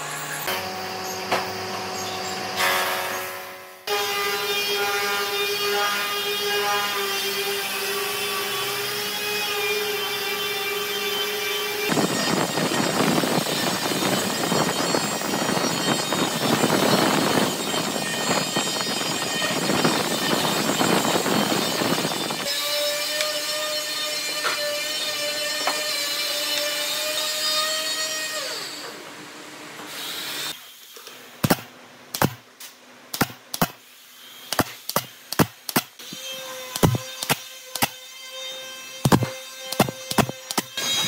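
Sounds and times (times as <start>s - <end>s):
power tool cutting: 3.9s - 29.0s, 34.4s - 41.0s
power tool motor whining: 38.9s - 41.0s.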